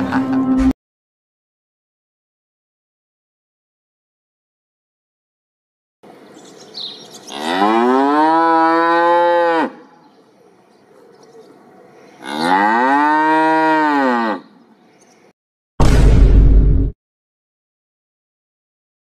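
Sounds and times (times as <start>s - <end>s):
cow mooing: 7.3s - 9.9s, 12.2s - 14.5s.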